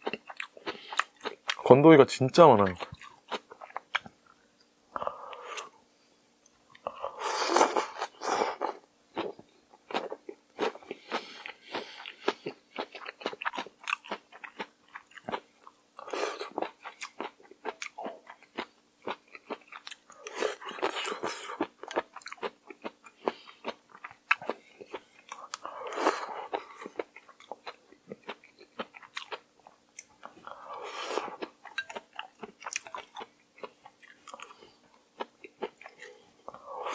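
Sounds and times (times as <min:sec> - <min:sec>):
chewing with wet crunches: 0:00.0 - 0:01.6, 0:02.6 - 0:04.4, 0:09.2 - 0:30.6, 0:31.3 - 0:34.6.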